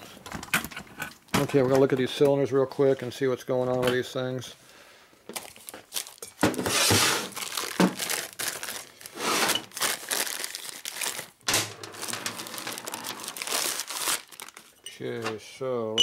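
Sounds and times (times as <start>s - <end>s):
plastic bag crinkling: 5.3s - 14.8s.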